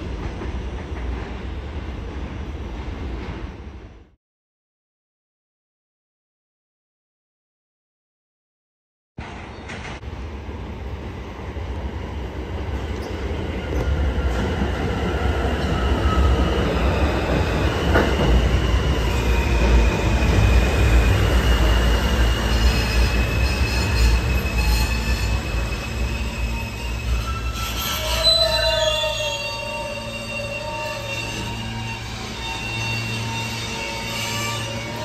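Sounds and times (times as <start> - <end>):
subway train rumble: 0.0 - 4.2, 9.2 - 35.0
steel wheels squealing: 15.5 - 35.0.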